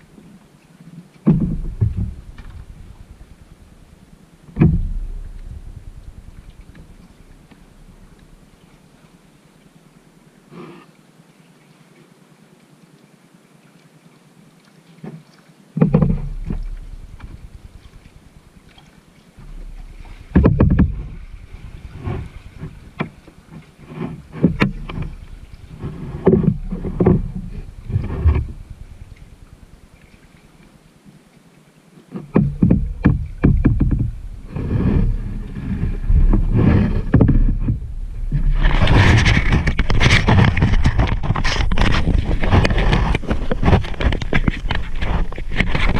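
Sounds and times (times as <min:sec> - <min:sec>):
water dripping from paddle: 0:00.0 - 0:10.4, 0:12.6 - 0:31.7, 0:32.3 - 0:36.4
kayak paddle splashing: 0:00.0 - 0:45.9
wind rumble on microphone: 0:01.2 - 0:10.3, 0:15.8 - 0:30.8, 0:32.2 - 0:45.9.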